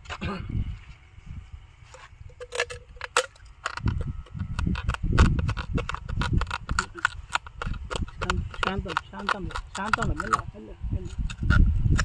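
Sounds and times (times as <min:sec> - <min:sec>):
glass crunching: 0:02.3 - 0:10.4.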